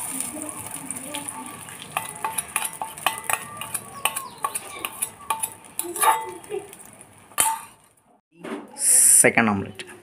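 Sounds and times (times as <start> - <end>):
utensil clinking steel bowl: 0.1 - 7.9.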